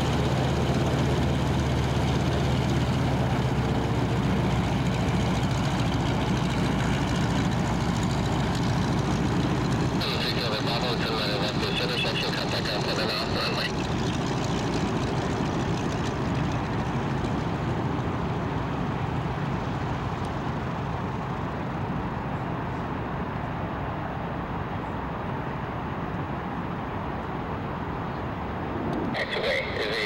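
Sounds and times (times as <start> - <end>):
aircraft radial engine rumble: 0.0 - 30.0.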